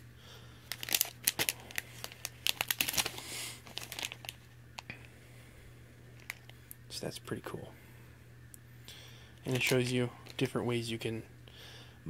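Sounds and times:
plastic packet crinkling: 0.6s - 4.9s, 6.2s - 6.7s, 9.4s - 10.9s.

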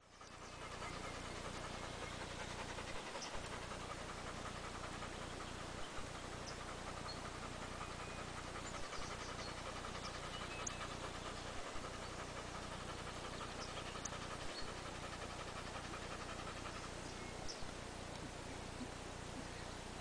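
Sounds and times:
dog panting: 0.0s - 17.8s.

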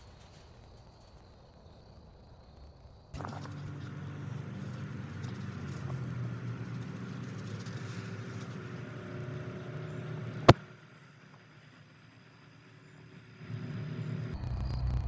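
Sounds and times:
low motor rumble: 3.2s - 15.0s.

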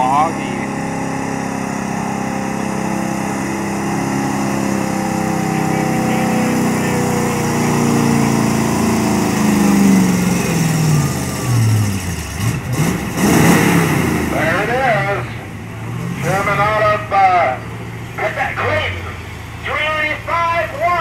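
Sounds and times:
truck engine running hard: 0.0s - 21.0s.

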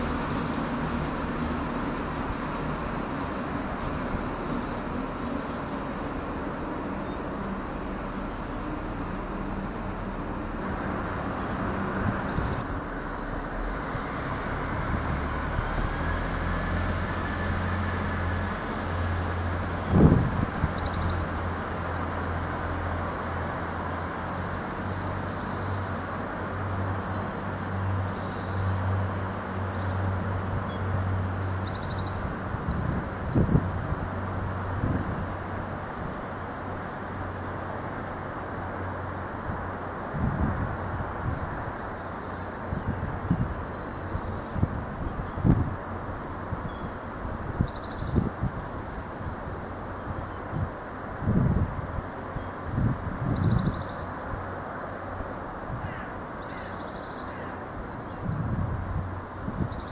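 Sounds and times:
diesel train engines droning: 0.0s - 44.6s
small birds chirping: 51.2s - 59.9s.

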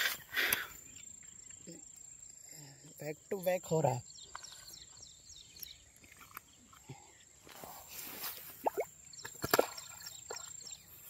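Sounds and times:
rustling in grass: 7.4s - 8.8s.

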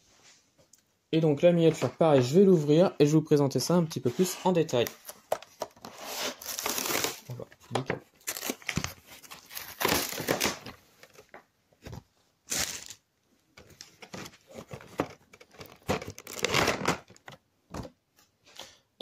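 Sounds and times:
plastic packaging crinkling: 8.2s - 11.3s, 12.5s - 13.0s, 13.8s - 17.4s.

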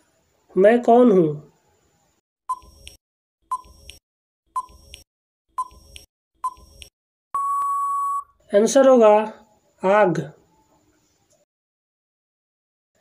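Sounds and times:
steady beep: 7.4s - 8.3s.

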